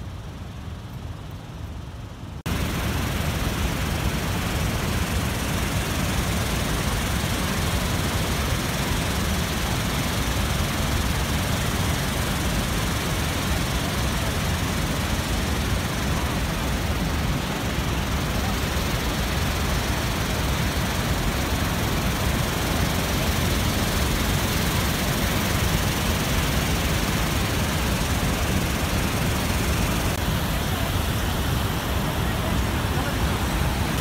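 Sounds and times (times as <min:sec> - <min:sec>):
waterfall rushing: 0:11.6 - 0:34.0.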